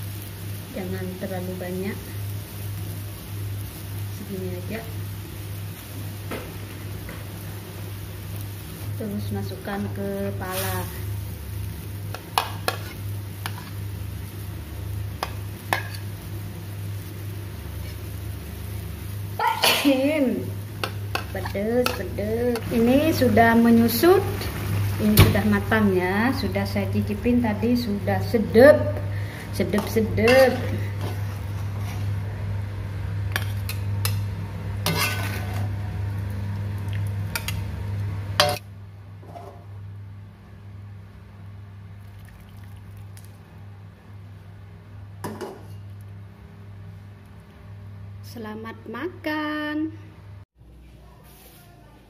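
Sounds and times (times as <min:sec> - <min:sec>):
steady low hum: 0:00.0 - 0:51.2
metal spatula scraping a wok: 0:12.3 - 0:13.8, 0:15.7 - 0:16.1, 0:30.2 - 0:32.2, 0:34.8 - 0:35.8
sauce simmering: 0:20.6 - 0:26.5, 0:41.9 - 0:43.6.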